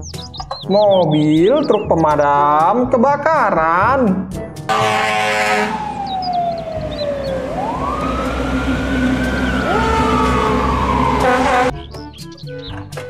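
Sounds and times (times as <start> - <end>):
horn blast: 4.7 - 6.1, 7.4 - 11.7
fire engine sirens wailing: 4.7 - 11.7
truck engines rumbling: 4.7 - 11.8.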